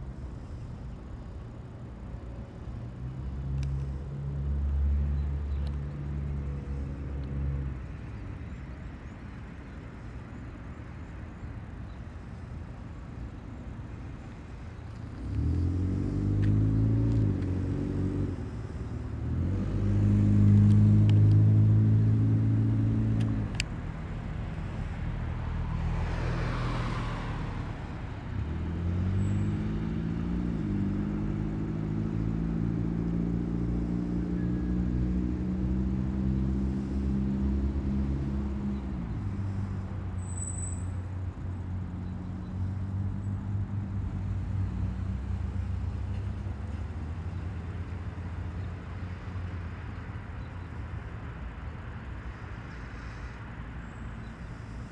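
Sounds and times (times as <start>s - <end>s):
vehicle passing: 2.8s - 8.4s, 14.0s - 40.2s, 40.9s - 54.9s
vehicle engine revving: 15.0s - 40.1s.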